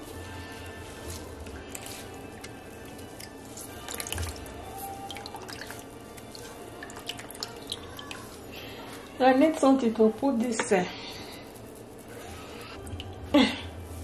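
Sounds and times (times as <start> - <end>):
liquid dripping into a tub: 3.2 - 8.3.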